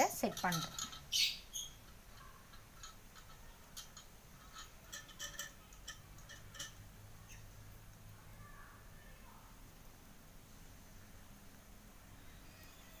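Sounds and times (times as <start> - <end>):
metal wire clicking: 0.0 - 7.4.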